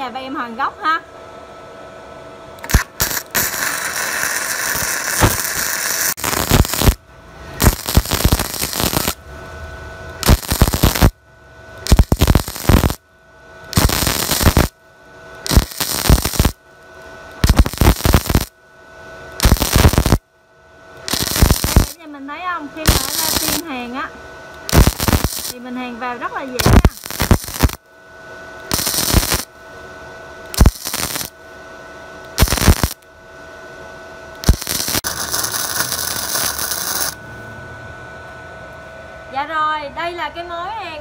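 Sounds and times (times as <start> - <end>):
welding arc crackling: 2.6 - 13.0, 13.6 - 18.6, 19.2 - 20.2, 21.0 - 27.9, 28.6 - 29.6, 30.5 - 31.4, 32.2 - 33.1, 34.4 - 37.2.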